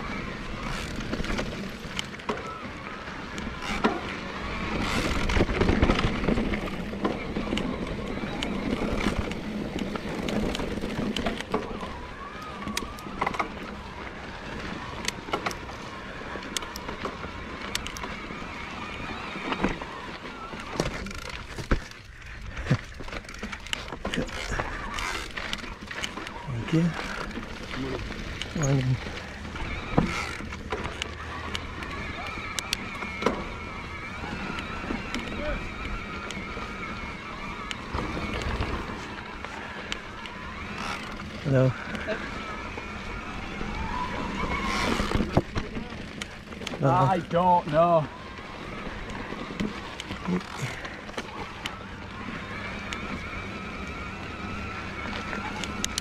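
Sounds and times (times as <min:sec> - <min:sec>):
bike knocking and rattling over bumps: 0:00.0 - 0:56.0
bike tyre and wind noise: 0:00.0 - 0:56.0.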